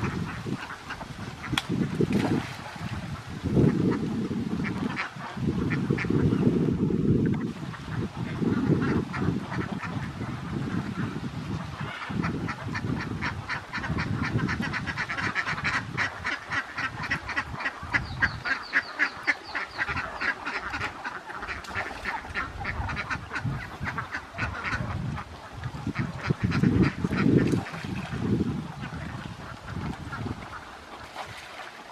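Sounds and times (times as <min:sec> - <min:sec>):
ducks quacking: 0:07.9 - 0:31.7.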